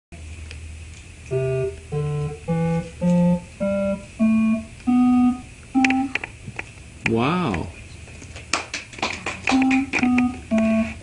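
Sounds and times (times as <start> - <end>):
faint low hum: 0.2 - 8.5, 9.1 - 11.0
electronic keyboard notes: 1.3 - 6.2, 9.5 - 11.0.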